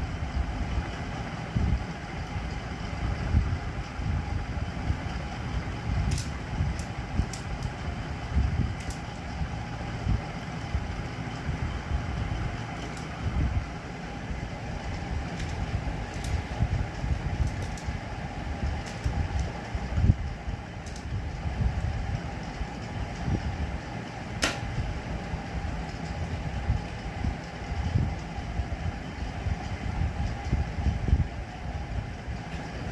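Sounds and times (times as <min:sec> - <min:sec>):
steady low rumble: 0:00.0 - 0:32.9
plastic puzzle clicks: 0:06.1 - 0:07.8, 0:08.8 - 0:09.0, 0:15.3 - 0:16.4, 0:17.4 - 0:17.9, 0:18.8 - 0:19.5, 0:20.8 - 0:21.1.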